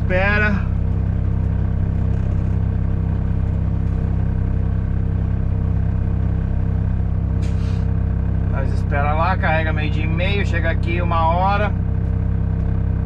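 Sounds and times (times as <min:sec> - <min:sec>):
diesel truck engine running: 0:00.0 - 0:13.0.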